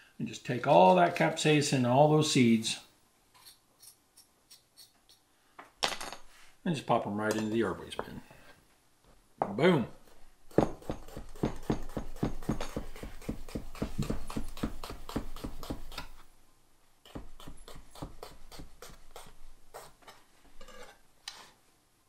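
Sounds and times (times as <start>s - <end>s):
knife chopping on cutting board: 10.5s - 16.2s.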